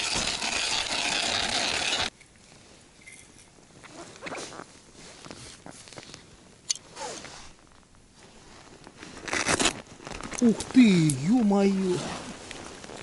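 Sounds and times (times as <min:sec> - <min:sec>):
clothing rustle: 0:02.4 - 0:13.0
zipper being pulled open: 0:03.8 - 0:07.8, 0:09.0 - 0:10.7.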